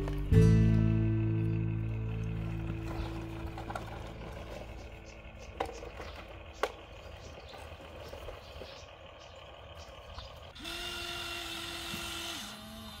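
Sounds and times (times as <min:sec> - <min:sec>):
small electric motor whining: 0:10.4 - 0:13.0.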